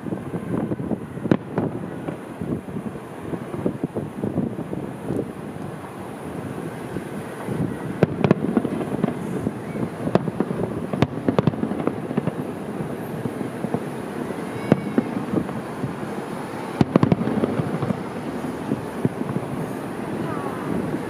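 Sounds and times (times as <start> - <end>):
fireworks bursting bangs: 0.0 - 21.0.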